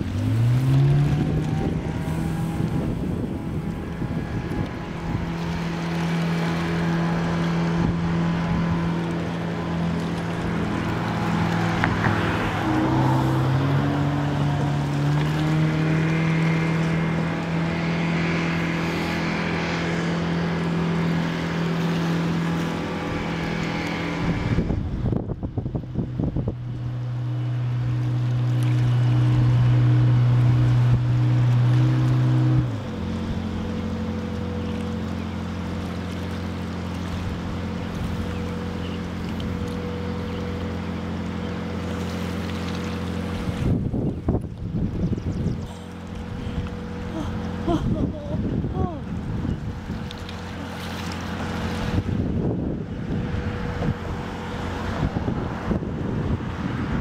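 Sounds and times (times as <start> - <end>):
wind buffeting the microphone: 0.0 - 5.9, 23.2 - 27.2, 43.2 - 50.6, 51.4 - 57.0
boat engine revving: 0.0 - 57.0.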